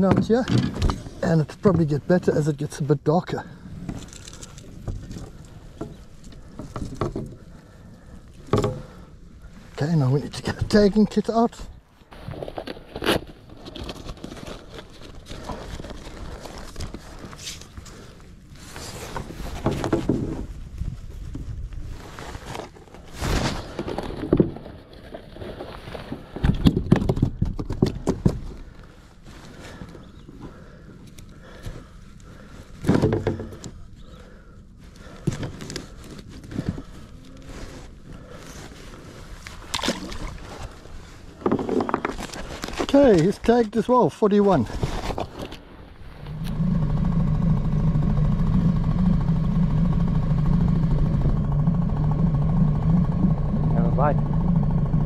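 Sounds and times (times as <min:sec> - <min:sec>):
small outboard motor running: 0:46.1 - 0:55.0.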